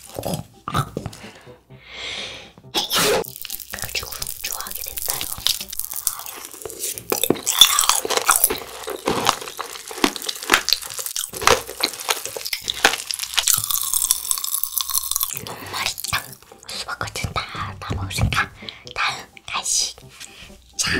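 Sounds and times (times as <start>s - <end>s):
crunching and chewing candy: 0.0s - 1.2s, 2.8s - 16.7s.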